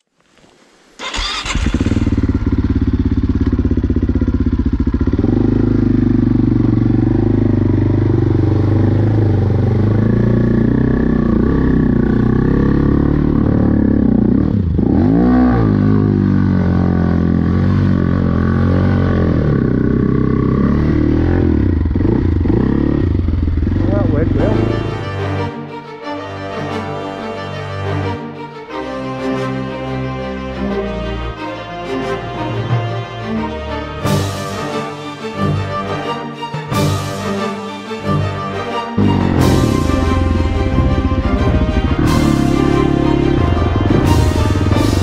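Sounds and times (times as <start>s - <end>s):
motorcycle engine under load: 1.0s - 24.4s, 39.0s - 45.0s.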